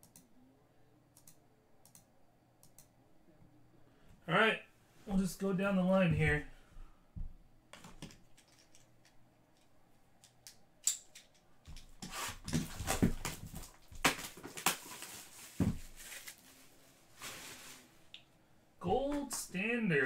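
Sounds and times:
plastic shrink wrap crinkling: 12.6 - 18.1.

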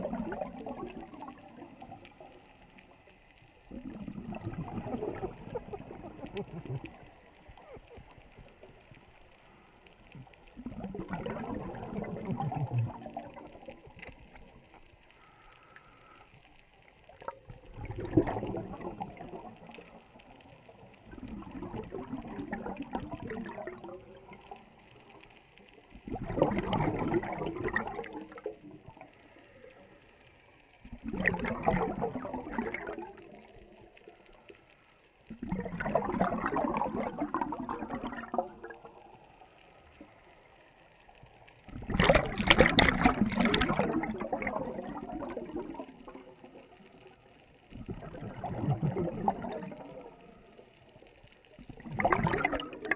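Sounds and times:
underwater breath bubbling: 0.0 - 2.4, 3.6 - 8.5, 9.4 - 13.9, 15.1 - 16.4, 17.6 - 19.8, 26.0 - 30.0, 30.8 - 33.6, 35.3 - 38.8, 41.7 - 46.6, 47.7 - 50.8, 51.7 - 52.9.

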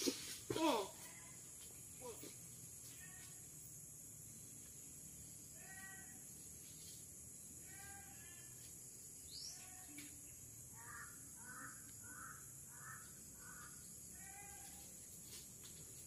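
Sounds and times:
steady high hiss: 0.0 - 14.2
faint bird calls: 9.3 - 14.9.

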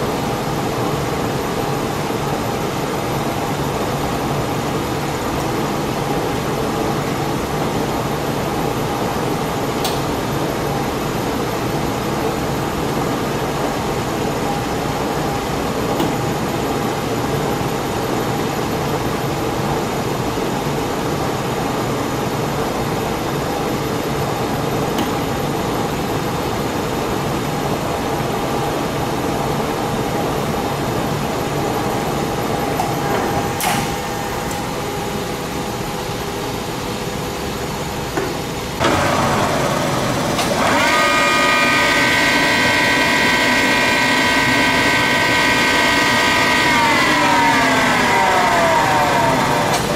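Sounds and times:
lathe running: 38.8 - 49.9
rising gear whine: 38.8 - 49.9.

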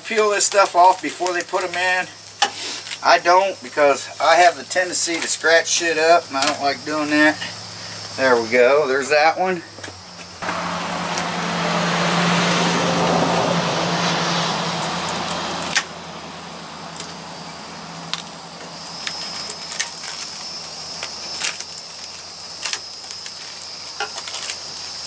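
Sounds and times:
loud rushing noise with hum: 10.4 - 18.0.

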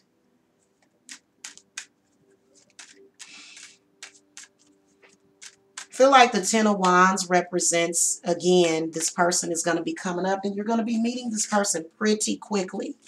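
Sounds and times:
cards clicking and snapping: 0.8 - 2.0, 2.6 - 6.0
cards rustling: 0.8 - 6.0.

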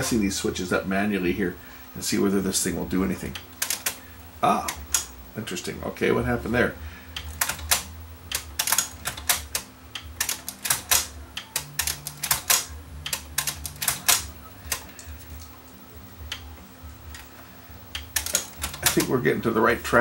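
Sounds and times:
cassette deck clicking: 7.2 - 15.0, 17.9 - 19.1.

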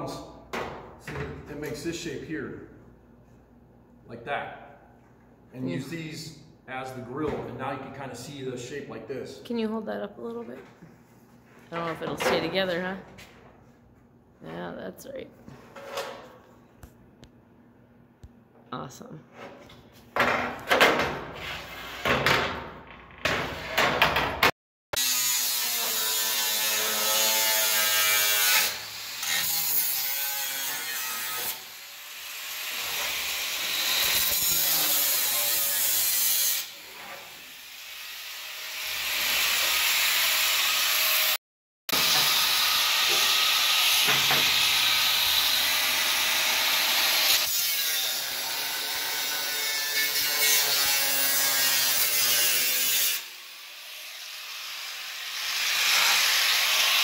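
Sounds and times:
angle grinder cutting steel: 25.0 - 57.0.

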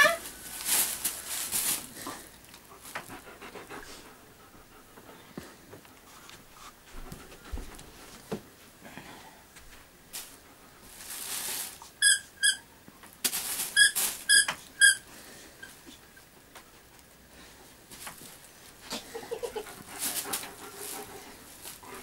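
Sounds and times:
dog toy squeaking: 12.0 - 12.6, 13.8 - 15.0.

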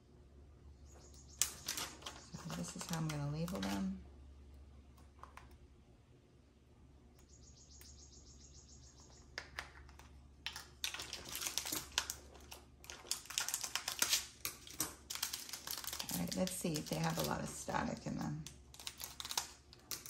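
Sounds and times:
plastic bags crinkling: 1.4 - 4.0, 10.5 - 20.0.

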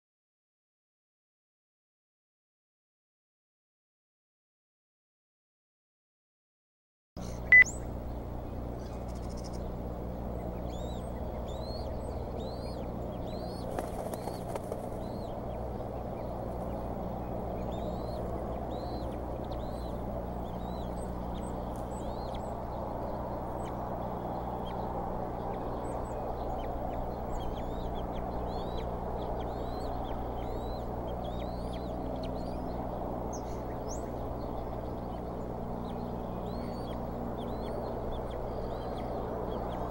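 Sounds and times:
high bird chirps: 7.2 - 7.9
electrical hum and hiss: 7.2 - 39.9.

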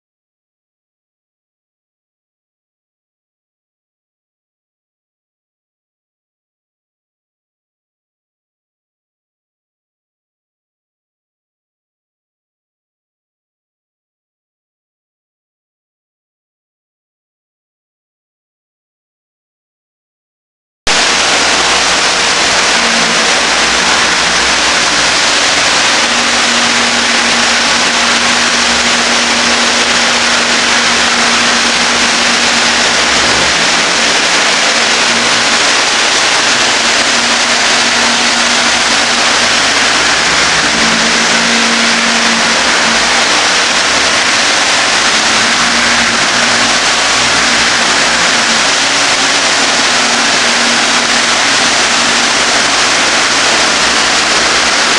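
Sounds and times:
water and air rushing through lines: 20.9 - 54.9.

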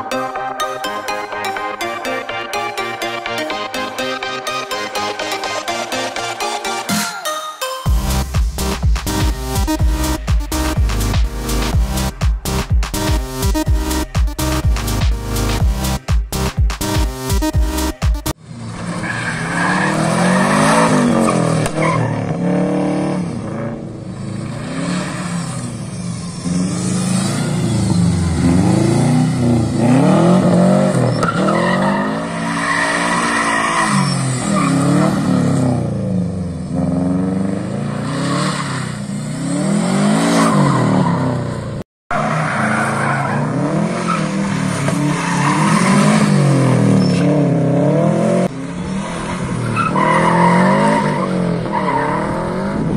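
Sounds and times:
rally car engine revving: 18.3 - 52.9.

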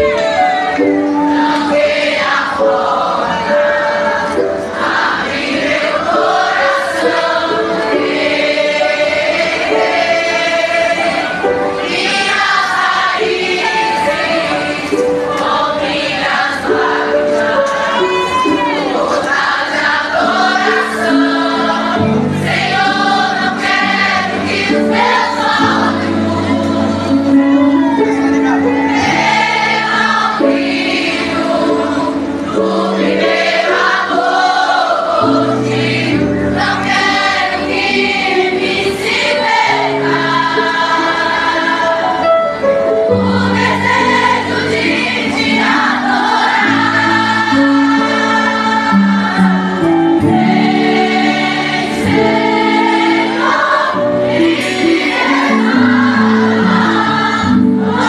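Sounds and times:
crowd singing gospel music: 0.0 - 58.0.

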